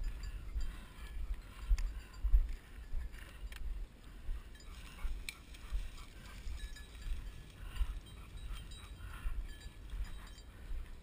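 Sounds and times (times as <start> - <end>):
footsteps dull thuds: 0.0 - 6.0
dry grass rustling: 0.0 - 11.0.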